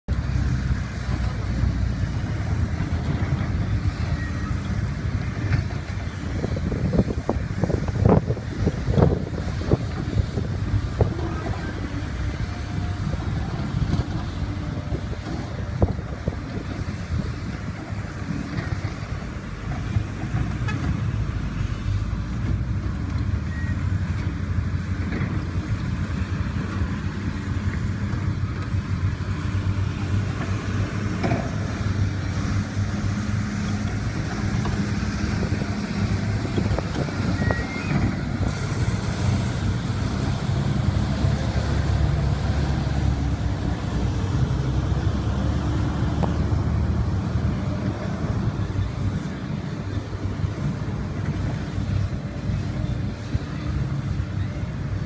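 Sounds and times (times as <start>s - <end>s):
diesel machinery engine rumble: 0.1s - 55.0s.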